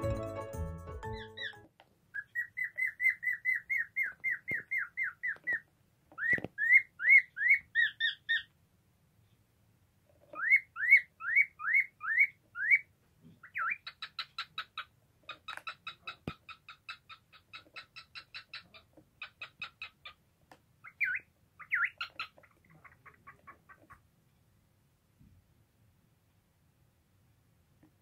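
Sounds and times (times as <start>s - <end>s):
cockatiel chirping: 1.0s - 8.6s, 10.2s - 20.2s, 20.8s - 24.0s.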